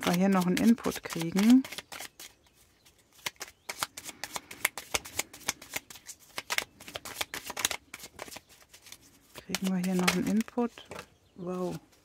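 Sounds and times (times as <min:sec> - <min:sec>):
cards being shuffled: 0:00.0 - 0:02.4, 0:03.1 - 0:11.0.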